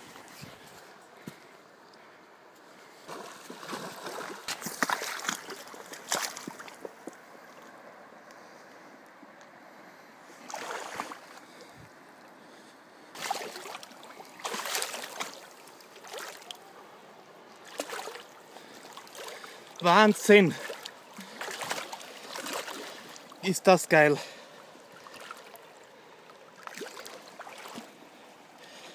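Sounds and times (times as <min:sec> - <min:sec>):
flowing river water: 0:00.0 - 0:28.9
fish splashing in shallow water: 0:03.0 - 0:07.7, 0:10.4 - 0:11.7, 0:13.2 - 0:16.8, 0:17.5 - 0:19.8, 0:20.5 - 0:23.4, 0:24.4 - 0:28.9.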